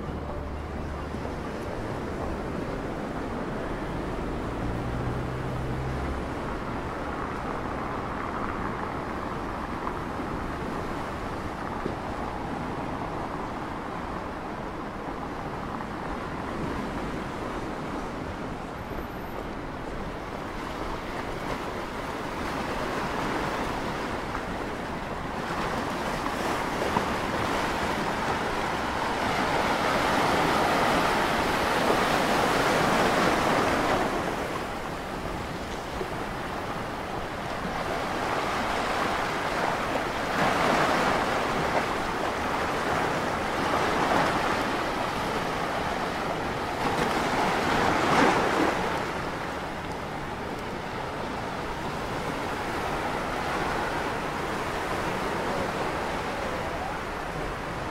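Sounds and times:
waves breaking over rocks: 19.8s - 57.9s.

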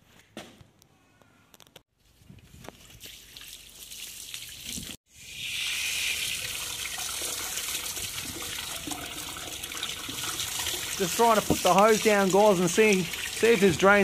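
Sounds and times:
hose water pouring into pipe: 2.9s - 14.0s
garden tap turning: 9.8s - 14.0s.

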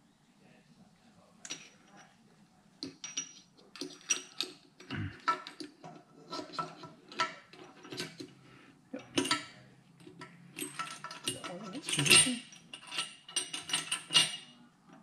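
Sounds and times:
metal parts clinking: 2.9s - 8.4s, 9.0s - 14.6s.

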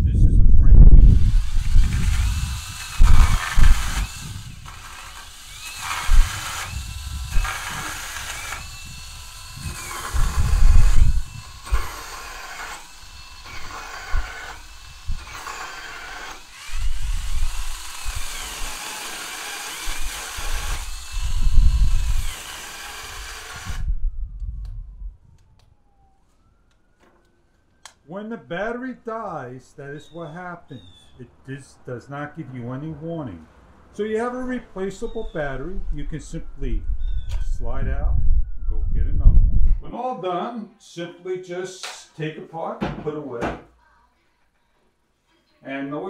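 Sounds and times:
chainsaw motor whining: 1.0s - 24.0s.

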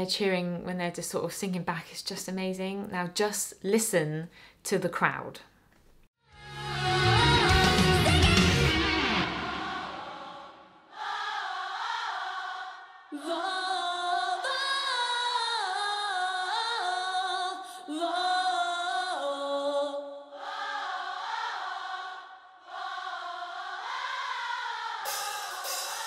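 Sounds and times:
crowd of women singing: 7.0s - 26.0s.

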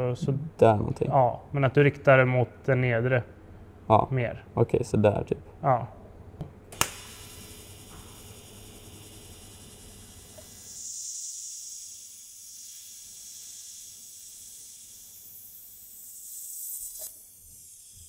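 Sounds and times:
welding torch hissing: 6.8s - 18.0s.

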